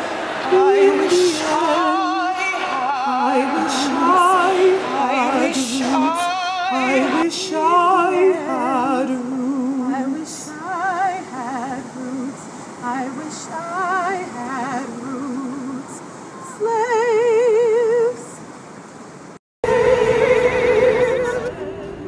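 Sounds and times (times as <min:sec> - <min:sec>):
woman singing solo: 0:00.4 - 0:18.4.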